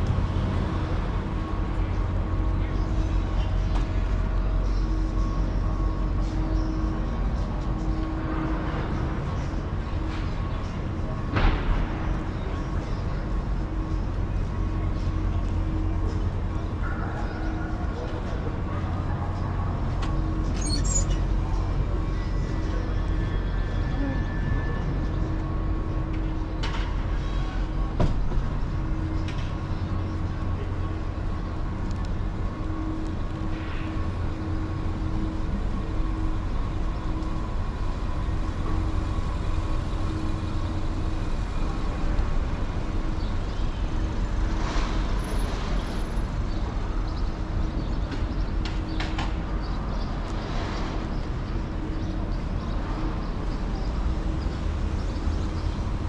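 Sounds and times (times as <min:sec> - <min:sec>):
engine-like hum: 0:00.0 - 0:56.0
low traffic rumble: 0:00.0 - 0:56.0.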